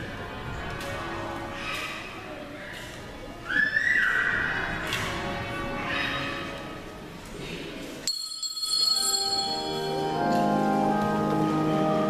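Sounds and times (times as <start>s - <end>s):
bells ringing: 8.1s - 11.0s.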